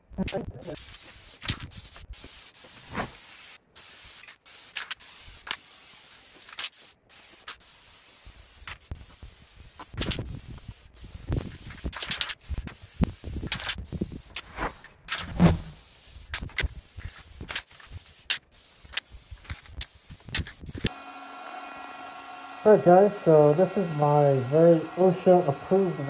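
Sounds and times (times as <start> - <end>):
aerosol can spraying: 0.7 - 26.0.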